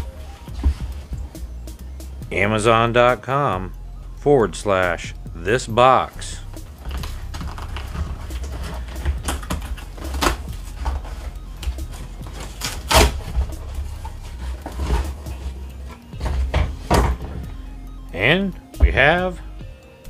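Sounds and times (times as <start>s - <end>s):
cardboard box scraping and rustling: 7.0s - 16.8s.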